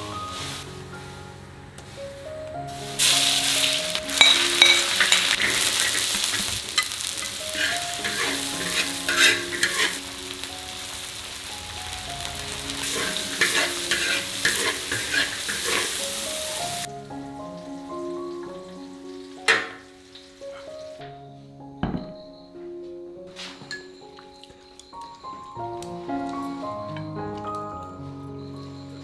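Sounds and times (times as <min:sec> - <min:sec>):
food sizzling in a wok: 0:00.0 - 0:01.3, 0:01.9 - 0:21.0
metal ladle scraping a wok: 0:03.0 - 0:10.1, 0:12.7 - 0:16.9.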